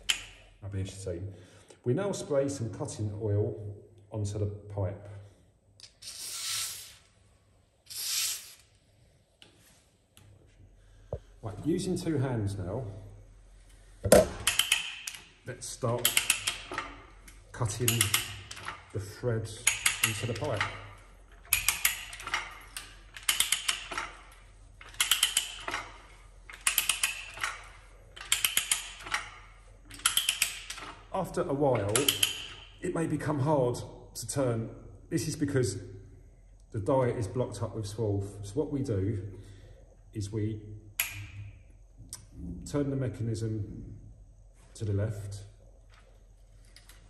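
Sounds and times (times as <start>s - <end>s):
aerosol can spraying: 6.0s - 6.9s, 7.9s - 8.6s
ratchet pawl clicking: 19.6s - 31.0s, 31.8s - 32.6s.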